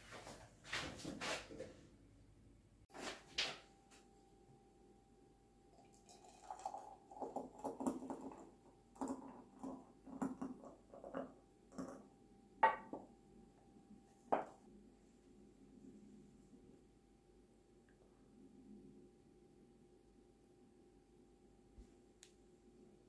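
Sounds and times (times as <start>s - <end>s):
hot chocolate pouring into mug: 5.7s - 12.0s.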